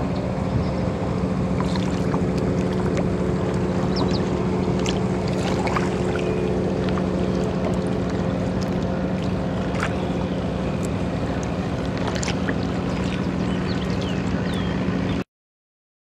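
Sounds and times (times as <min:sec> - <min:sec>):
boat motor hum: 0:00.0 - 0:15.3
water wash: 0:01.4 - 0:15.2.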